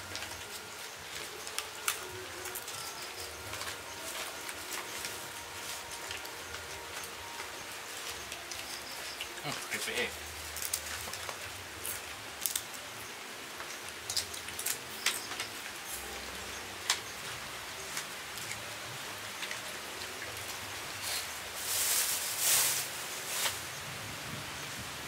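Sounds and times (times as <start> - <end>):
food wrapping crinkling: 0.0 - 12.9, 13.7 - 16.2, 19.5 - 23.6
steady outdoor hiss: 0.0 - 25.0.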